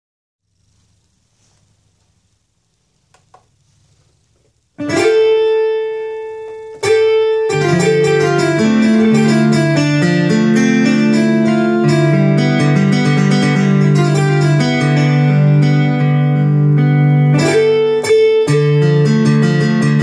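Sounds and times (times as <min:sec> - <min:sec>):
electronic keyboard cha-cha tune: 0:04.8 - 0:20.0
keyboard chords ringing: 0:04.8 - 0:20.0.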